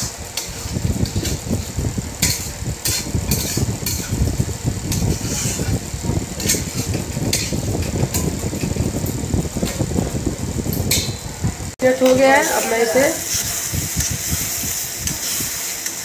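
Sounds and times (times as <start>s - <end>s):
steady low hum: 0.0s - 16.0s
spatula scraping paste in a pan: 4.9s - 5.7s.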